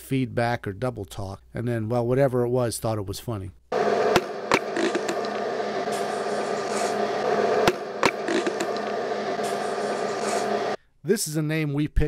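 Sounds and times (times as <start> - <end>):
electronic hum: 3.7 - 10.8
phone line hiss: 3.8 - 10.8.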